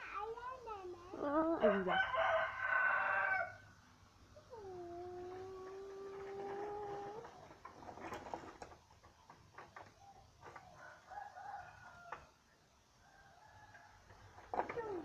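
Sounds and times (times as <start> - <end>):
rooster crowing faintly: 1.6 - 3.7, 10.0 - 15.0.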